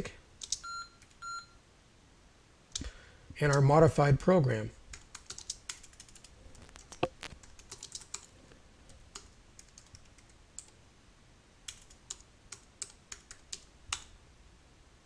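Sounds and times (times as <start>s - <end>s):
keyboard typing clicks: 0.4s - 1.2s, 4.9s - 8.3s, 8.9s - 10.8s, 11.7s - 14.1s.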